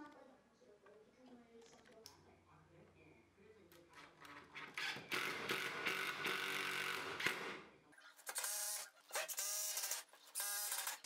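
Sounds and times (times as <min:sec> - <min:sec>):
cordless drill running into wood: 0:08.3 - 0:11.0.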